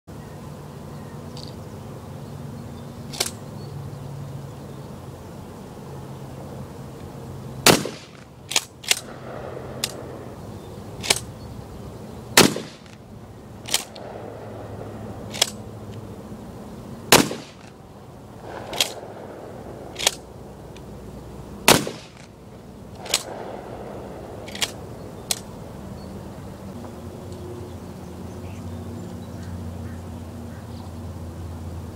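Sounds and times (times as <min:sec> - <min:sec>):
faint sharp cracks: 0:03.1 - 0:03.4, 0:07.6 - 0:10.4, 0:11.0 - 0:11.3, 0:12.4 - 0:16.1, 0:17.1 - 0:20.9, 0:21.6 - 0:25.6
loud shotgun shots: 0:07.6 - 0:10.2, 0:12.4 - 0:13.0, 0:17.1 - 0:17.8, 0:18.4 - 0:20.2, 0:21.6 - 0:22.3, 0:23.0 - 0:24.8.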